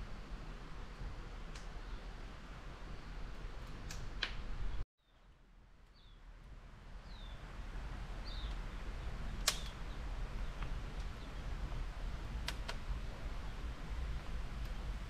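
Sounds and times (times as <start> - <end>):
wood fire popping: 3.2 - 4.8, 8.1 - 15.0
bird chirping: 5.9 - 6.2, 7.0 - 7.5, 8.2 - 11.5.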